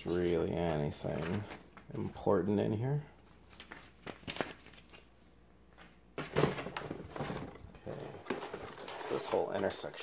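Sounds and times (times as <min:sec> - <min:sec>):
cardboard scraping and rustling: 0:06.2 - 0:09.8.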